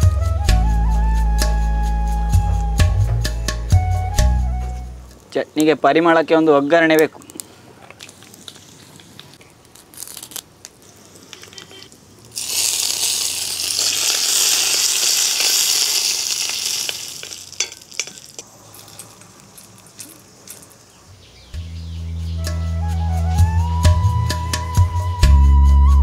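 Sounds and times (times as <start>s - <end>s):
chillies crackling in hot oil: 7.2s - 21.2s
loud sizzle of leaves in oil: 12.0s - 21.0s
spoon and pan clicks: 13.8s - 18.5s.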